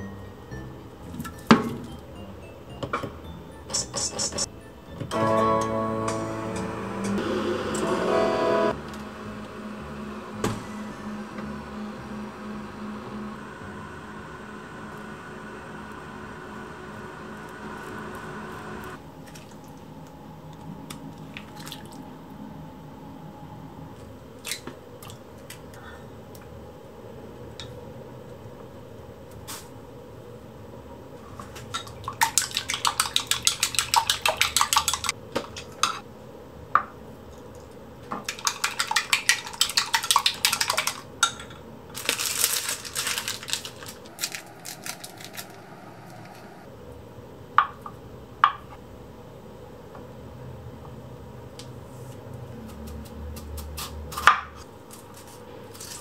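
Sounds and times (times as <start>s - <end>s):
eggs beaten in glass cup: 32.2s - 35.1s, 38.2s - 41.1s.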